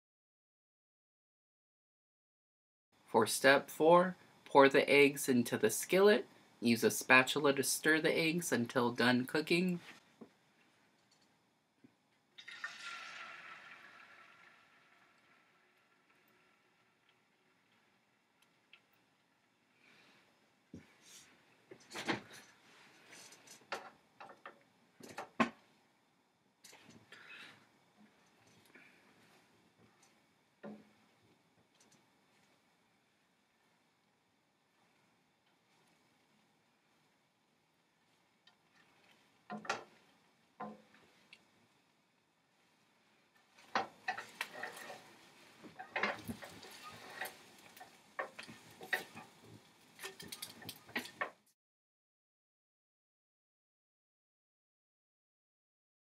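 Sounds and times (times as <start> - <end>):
eggs stirred in a skillet: 12.4 - 20.2, 43.4 - 51.4
spatula scraping pan: 44.1 - 49.3.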